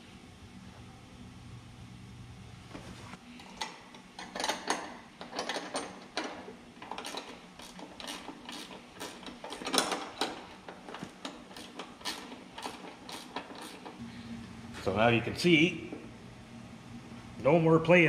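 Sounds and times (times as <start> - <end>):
metal clicking and clinking: 3.4 - 14.0.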